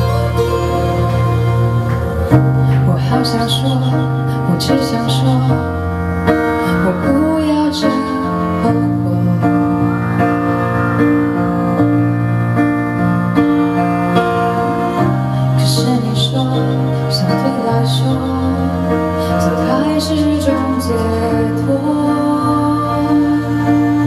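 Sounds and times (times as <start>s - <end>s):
piano ballad backing track: 0.0s - 24.0s
woman singing into microphone: 2.7s - 5.8s, 6.6s - 10.0s, 14.6s - 24.0s.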